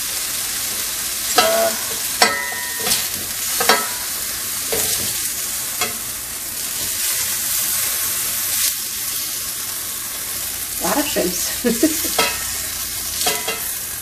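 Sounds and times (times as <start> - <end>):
shrimp sizzling in frying pan: 0.0 - 14.0
spatula scraping a pan: 1.4 - 6.1, 12.1 - 14.0.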